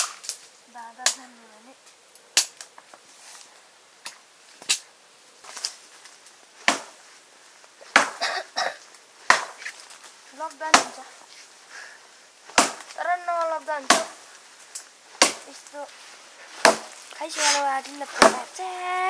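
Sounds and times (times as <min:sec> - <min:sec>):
blade chopping on wooden board: 0:16.6 - 0:17.0.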